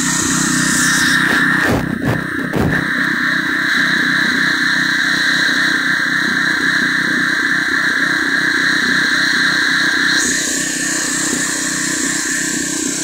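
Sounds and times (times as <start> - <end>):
pressure washer engine running: 0.0 - 7.3, 8.2 - 13.0.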